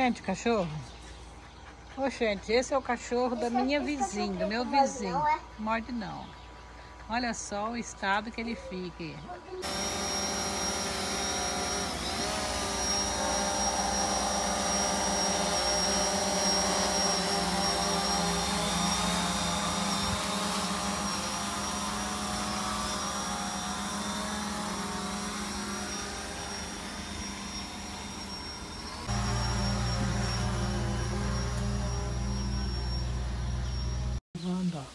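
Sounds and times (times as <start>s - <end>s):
drone propellers whining: 9.6s - 34.2s.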